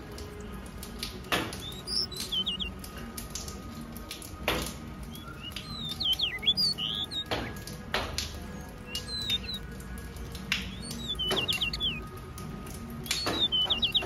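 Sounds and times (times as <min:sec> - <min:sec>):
faint ticking of seed pecking: 0:00.0 - 0:14.0
finches chirping and whistling: 0:01.1 - 0:02.9, 0:05.0 - 0:12.2, 0:13.0 - 0:14.0.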